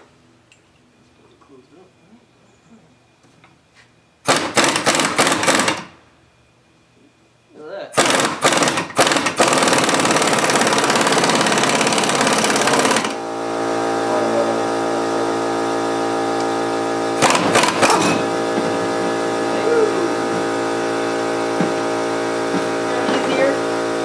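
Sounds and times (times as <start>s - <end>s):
machine hum: 0.0s - 24.0s
power tool rattling: 4.3s - 5.9s, 8.0s - 13.2s, 17.2s - 18.3s.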